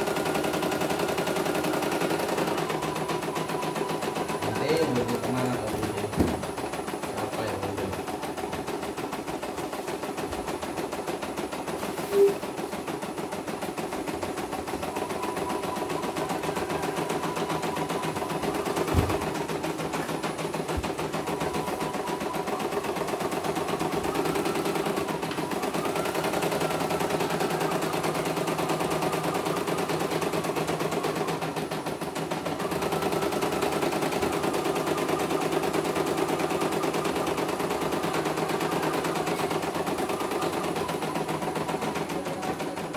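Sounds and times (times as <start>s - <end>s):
brief tone: 12.0s - 12.6s, 14.8s - 19.5s.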